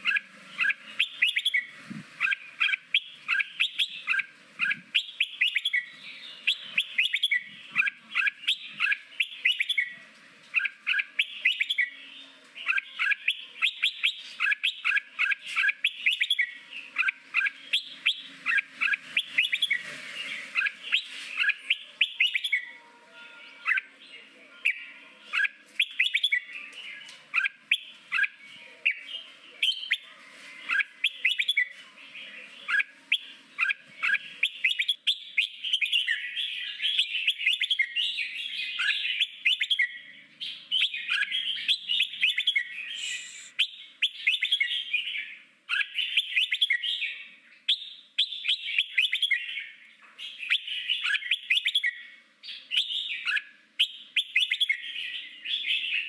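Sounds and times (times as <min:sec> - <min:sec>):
bulbul chirping song: 0:00.0 - 0:30.0, 0:30.6 - 0:56.0.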